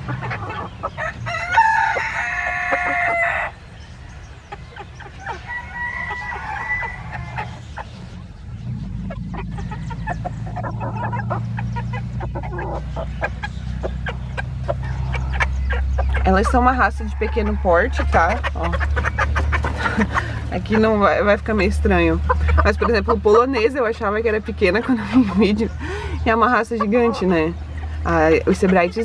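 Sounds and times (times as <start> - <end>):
hens clucking: 0.0 - 29.0
low steady rumble: 0.0 - 29.0
rooster crowing: 1.0 - 3.6, 5.2 - 7.6.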